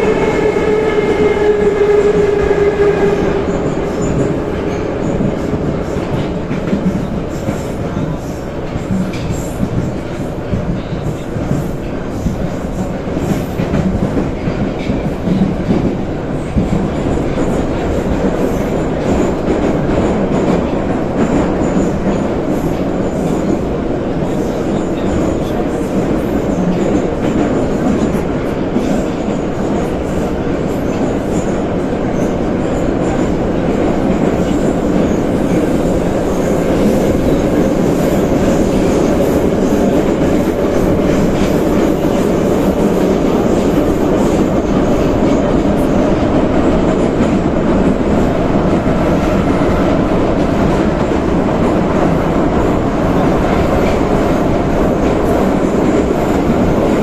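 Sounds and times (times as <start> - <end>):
metro train rumbling in tunnel: 0.0 - 57.0.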